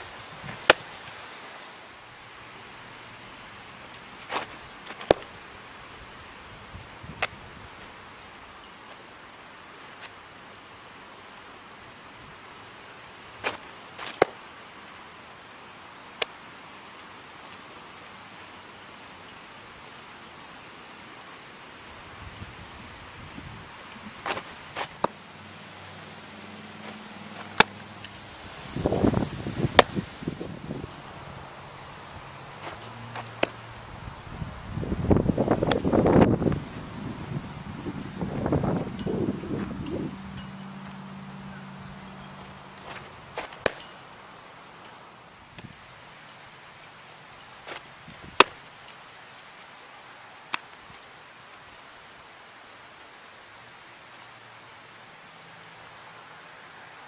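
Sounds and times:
outdoor hiss: 0:00.0 - 0:57.0
cleats scuffling on dirt: 0:04.1 - 0:05.4, 0:13.4 - 0:14.4, 0:23.8 - 0:33.6, 0:42.2 - 0:44.0, 0:47.4 - 0:48.6
ball smacking into mitt: 0:27.4 - 0:27.8.

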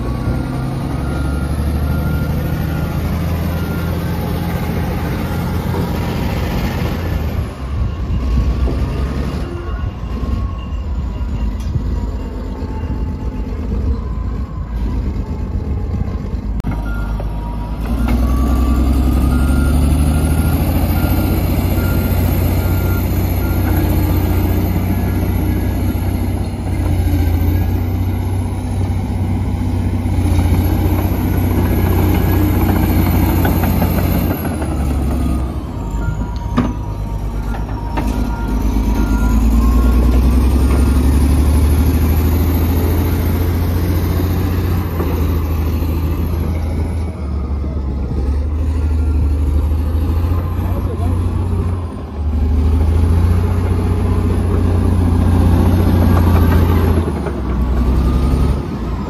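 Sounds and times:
backup alarm beeping: 0:00.0 - 0:26.0, 0:35.4 - 0:41.2
bulldozer engine rumbling: 0:00.0 - 0:59.0
high engine whine: 0:00.0 - 0:59.0.

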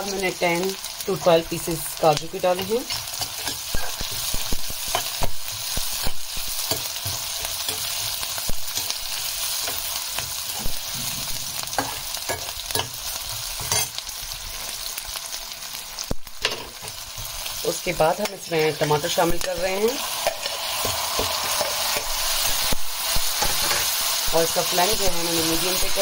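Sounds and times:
onions sizzling in hot oil: 0:00.0 - 0:26.0
metal spoon scraping a pan: 0:02.6 - 0:14.7, 0:16.4 - 0:24.1.

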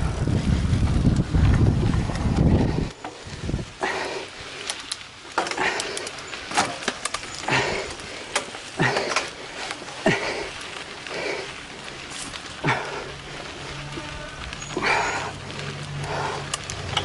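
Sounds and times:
person breathing hard: 0:02.5 - 0:04.7, 0:05.4 - 0:06.3, 0:07.4 - 0:13.6, 0:14.8 - 0:16.7
sharp clicks and rattles: 0:04.6 - 0:13.8, 0:14.5 - 0:17.0.

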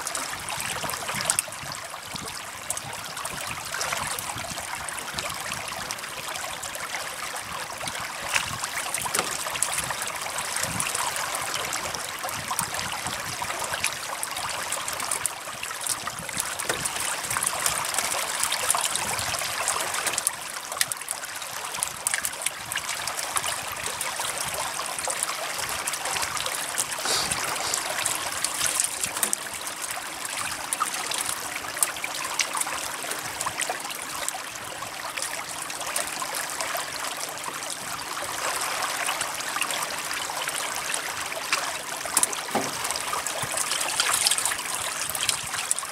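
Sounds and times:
fish splashing at water surface: 0:24.5 - 0:32.6.

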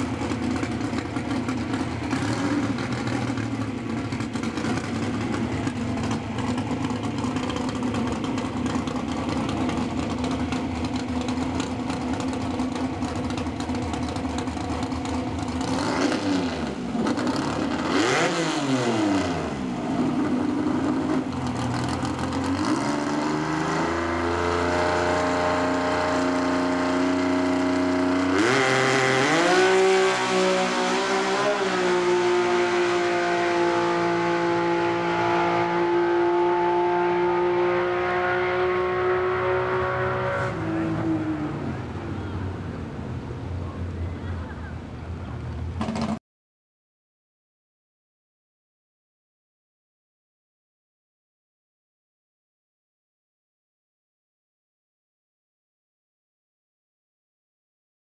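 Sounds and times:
drag car engine revving: 0:00.0 - 0:42.7.

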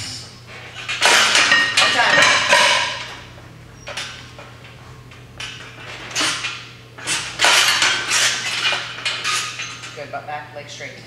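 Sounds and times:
chains and barbell clinking: 0:00.0 - 0:03.2, 0:05.4 - 0:10.1.

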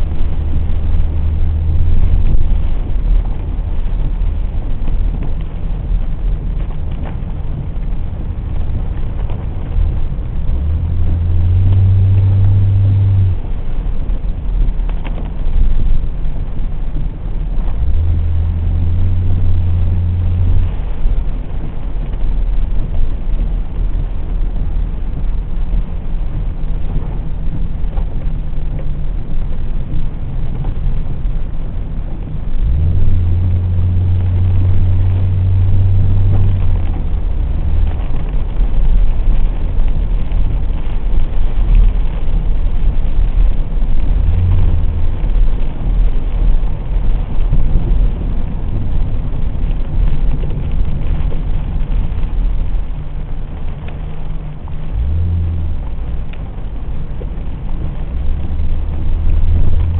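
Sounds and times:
deeper hum: 0:00.0 - 0:05.6, 0:06.4 - 0:14.1, 0:17.0 - 0:21.8, 0:27.7 - 0:39.0, 0:50.3 - 0:59.9
car engine and tyres rumbling: 0:00.0 - 0:59.9.

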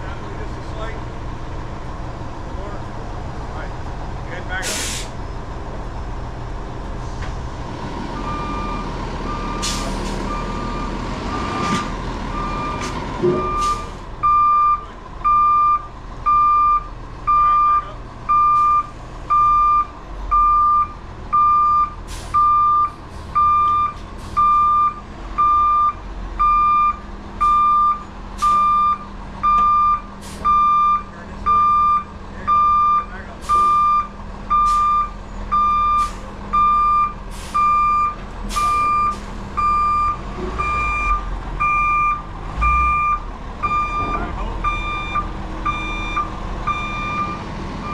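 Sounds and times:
diesel engine running: 0:00.0 - 0:47.9
backup alarm beeping: 0:12.4 - 0:47.9.

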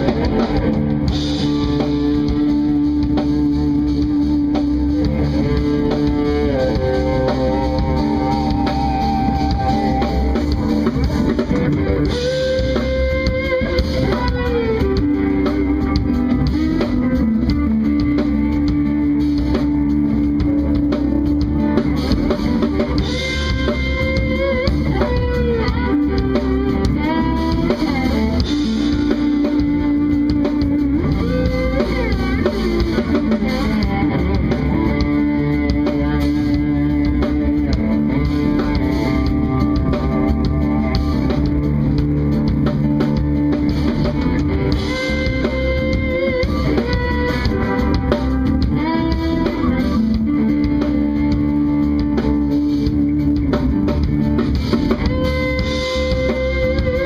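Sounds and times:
electric guitar melody: 0:00.0 - 0:57.0
live band playing instrumental: 0:00.0 - 0:57.0.

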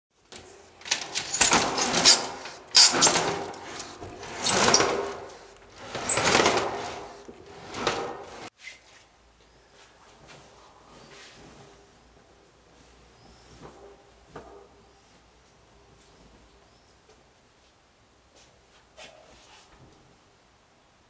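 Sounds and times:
roller shutter rattling up: 0:00.3 - 0:08.5.

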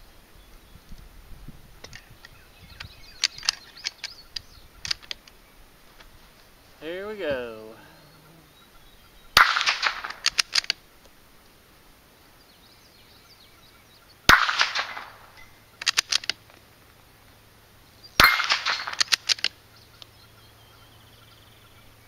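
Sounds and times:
sharp rifle bolt clicks: 0:01.8 - 0:05.4, 0:09.4 - 0:10.8, 0:14.3 - 0:16.5, 0:18.2 - 0:20.1
rifle shots: 0:09.4 - 0:10.8, 0:14.3 - 0:16.4, 0:18.2 - 0:19.5.

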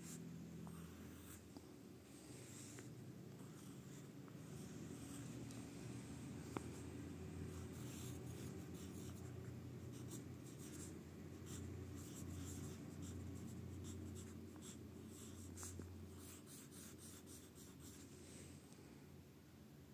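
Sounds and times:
pencil scratching on paper: 0:00.0 - 0:01.4, 0:02.4 - 0:05.3, 0:07.4 - 0:18.0
low steady hum: 0:00.0 - 0:19.9.

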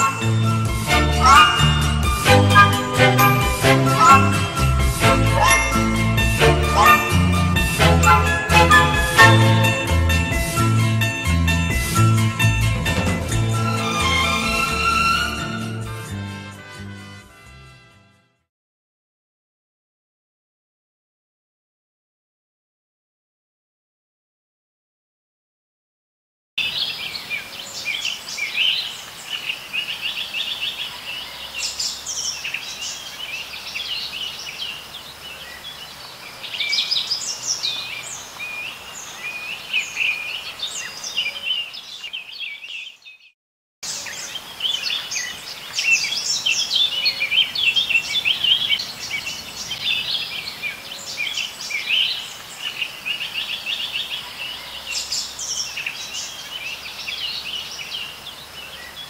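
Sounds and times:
birds singing and chirping: 0:00.0 - 0:09.8, 0:26.6 - 0:59.0.

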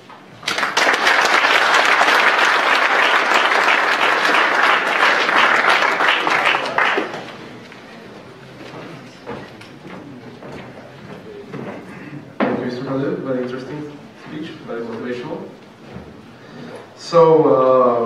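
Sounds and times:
audience applauding: 0:00.4 - 0:07.8.

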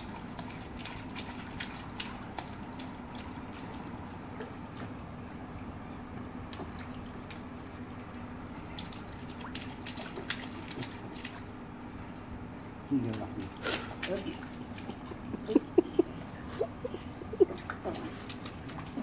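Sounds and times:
sharp drips: 0:00.0 - 0:05.4, 0:06.5 - 0:11.6
faint steady hum: 0:00.0 - 0:19.0
pool water lapping and splashing: 0:00.0 - 0:19.0.

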